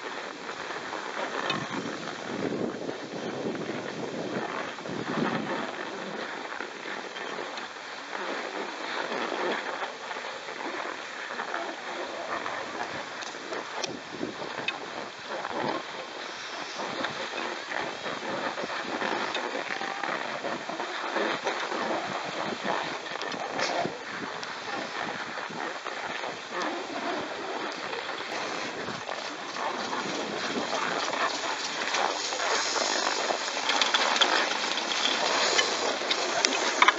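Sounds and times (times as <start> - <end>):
skis scraping over packed snow: 0.0 - 36.9.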